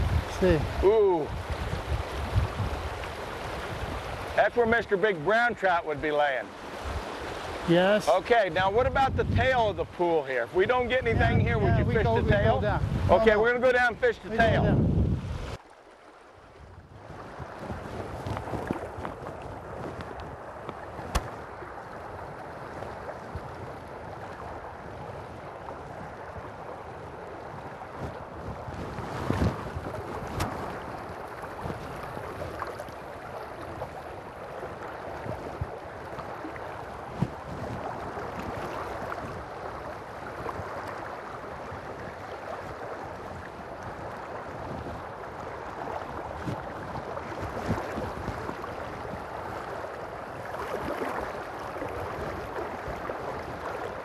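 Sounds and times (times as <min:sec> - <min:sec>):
river water rushing: 0:00.0 - 0:08.9, 0:15.2 - 0:54.0.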